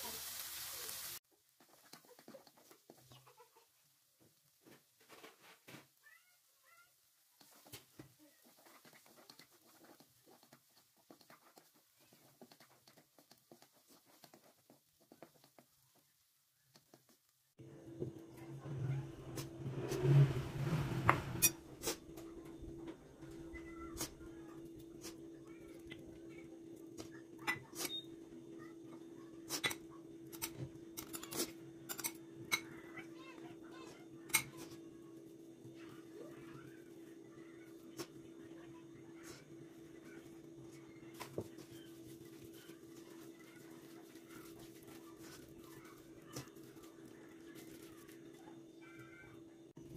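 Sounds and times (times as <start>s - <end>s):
spatula scraping a wok: 18.4s - 22.1s.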